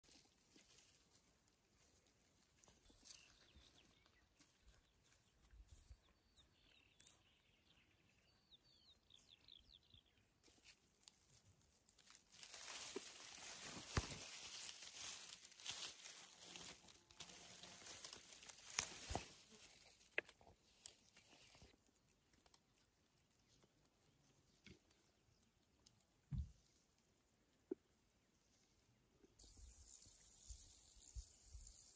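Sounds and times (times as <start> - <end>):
rustling: 10.4 - 21.8.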